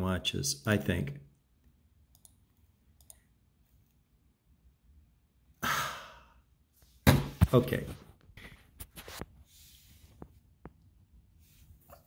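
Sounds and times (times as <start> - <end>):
man sighing: 5.6 - 6.5.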